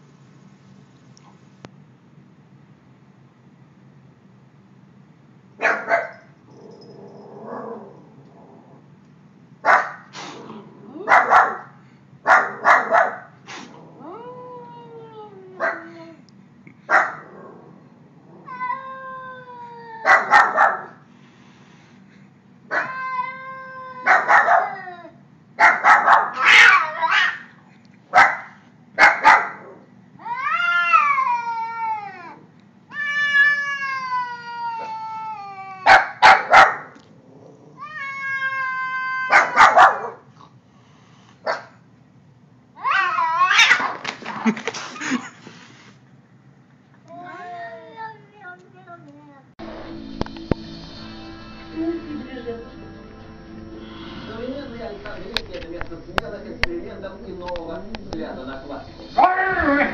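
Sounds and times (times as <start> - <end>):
cat growling yowls: 6.6 - 8.9, 13.7 - 15.9, 17.2 - 20.8, 22.7 - 25.2, 26.3 - 27.5, 29.6 - 36.2, 37.2 - 40.2, 42.8 - 44.0, 59.2 - 59.9
cat hissing: 10.0 - 11.0, 12.6 - 14.0, 26.3 - 27.6, 42.9 - 46.0.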